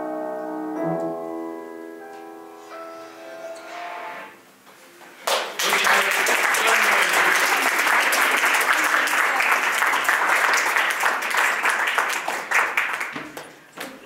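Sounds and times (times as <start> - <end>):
audience applauding: 5.2 - 14.0.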